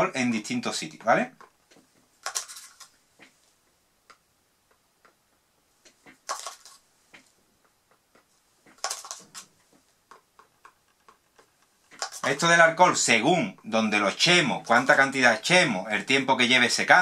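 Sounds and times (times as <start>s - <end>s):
scratchy rustles: 1.8s - 3.6s, 8.2s - 13.0s
wooden stick and plastic cup taps: 7.9s - 12.6s.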